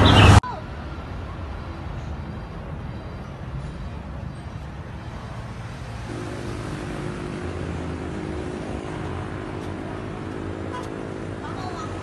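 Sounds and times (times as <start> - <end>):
traffic rumble: 0.0 - 12.0
engine drone: 4.8 - 12.0.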